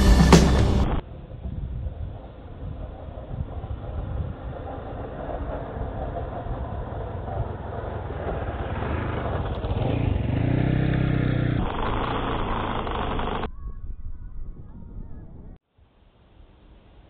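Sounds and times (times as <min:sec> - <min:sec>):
motorcycle engine passing by: 0:00.0 - 0:13.5.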